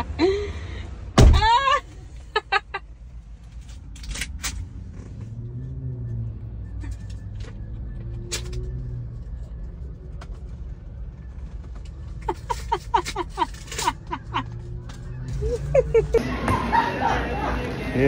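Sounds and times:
car door slamming: 1.2 - 1.6
person laughing: 12.2 - 14.7, 15.4 - 17.2.

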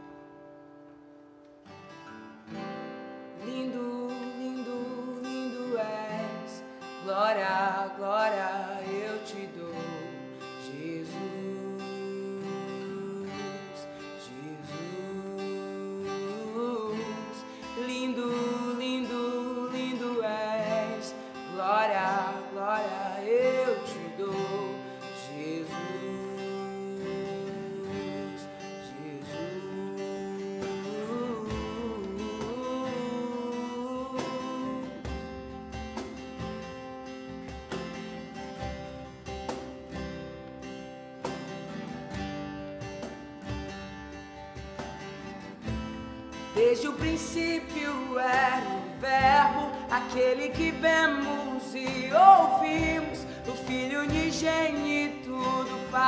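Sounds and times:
acoustic guitar strumming chords: 0.0 - 56.0
man singing: 3.4 - 35.9, 45.7 - 56.0.

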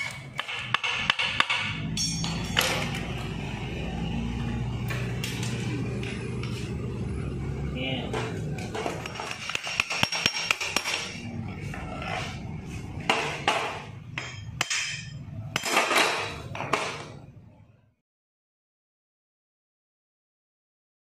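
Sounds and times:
metal tapping and clinking: 0.0 - 3.1, 8.6 - 11.2, 13.1 - 17.0.

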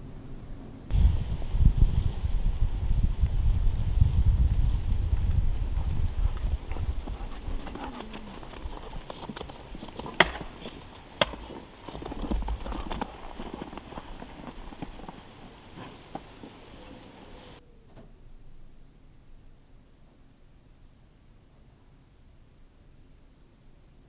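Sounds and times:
low rumble: 0.0 - 9.1
footsteps in snow: 3.9 - 16.9.

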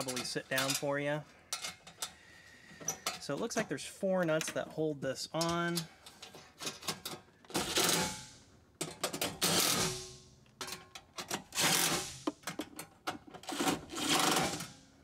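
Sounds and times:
socket and metal rattling: 10.6 - 14.7.

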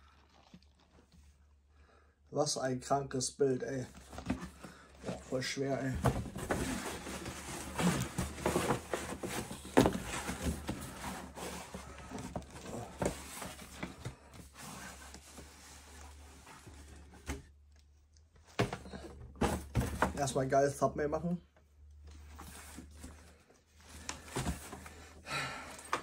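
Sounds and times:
cardboard box rustling and knocking: 4.0 - 15.4, 18.5 - 20.2.

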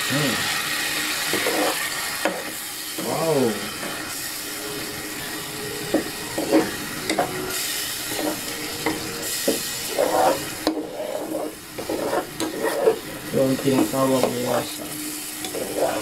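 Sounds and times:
sizzling hiss: 0.0 - 16.0
ladle scraping pot: 1.3 - 2.4, 6.3 - 7.4, 8.1 - 16.0.

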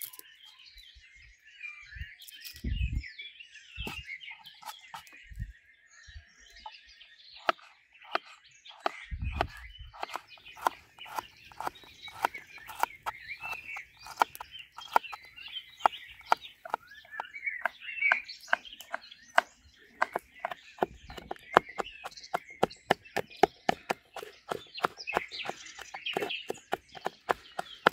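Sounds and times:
birds singing: 0.0 - 27.9
knife slicing on wooden bowl: 7.4 - 27.9.

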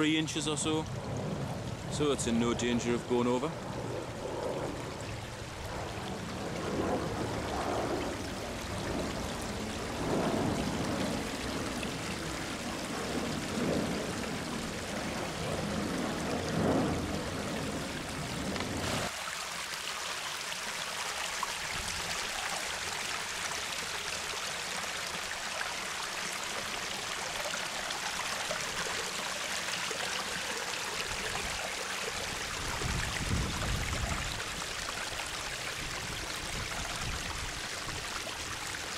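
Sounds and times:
water splashing over rocks: 4.8 - 38.9.

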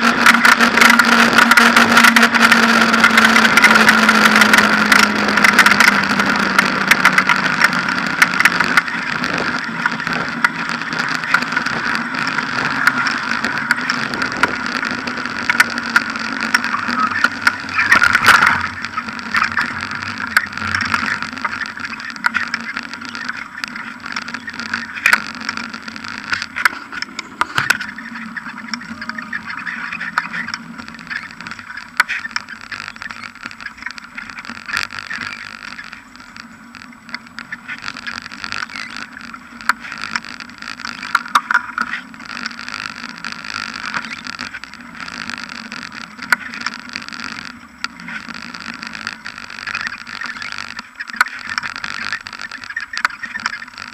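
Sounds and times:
bike knocks and rattles over bumps: 0.0 - 40.2
bicycle riding rush: 0.0 - 53.9.

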